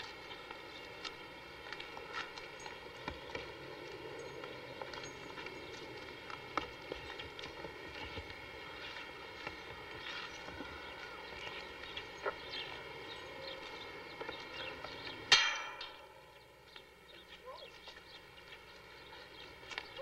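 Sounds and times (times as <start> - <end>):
low hum of even tones: 0.0 - 20.0.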